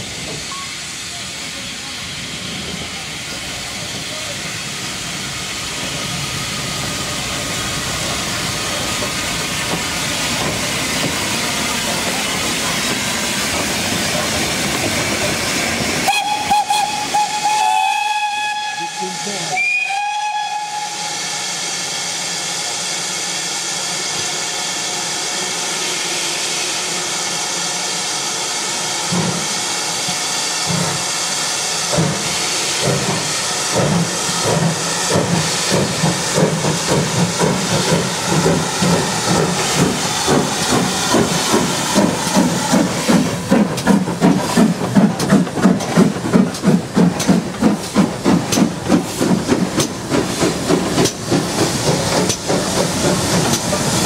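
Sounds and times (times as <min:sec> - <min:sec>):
steam hissing: 0:00.0 - 0:54.0
steam locomotive chuffing: 0:00.0 - 0:54.0
steam locomotive whistle: 0:16.0 - 0:21.8.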